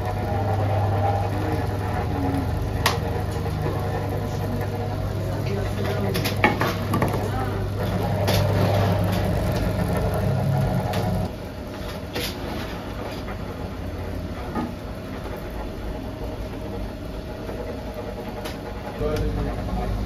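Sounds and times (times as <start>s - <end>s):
dough roller machine hum: 0.0s - 20.0s.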